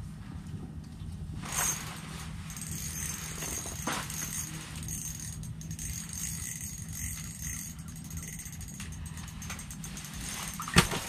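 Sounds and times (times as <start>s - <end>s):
steady low hum: 0.0s - 11.0s
fishing tackle rattling: 1.4s - 11.0s.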